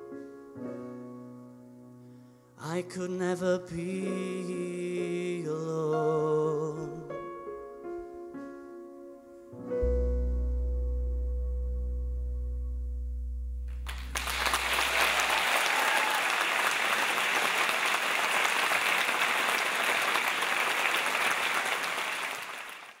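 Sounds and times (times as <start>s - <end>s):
held keyboard chord with bass: 6.8s - 15.4s
audience applause: 13.9s - 23.0s.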